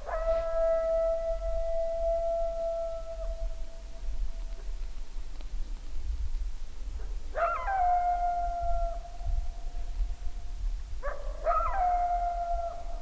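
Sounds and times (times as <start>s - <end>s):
coyote howling: 0.0s - 3.6s, 7.3s - 9.2s, 11.0s - 13.0s.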